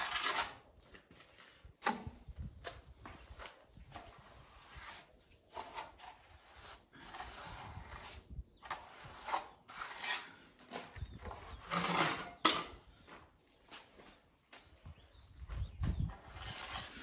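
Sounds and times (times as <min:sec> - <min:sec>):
trowel scraping wet mortar: 0:00.0 - 0:00.8, 0:03.9 - 0:12.8, 0:16.0 - 0:17.0.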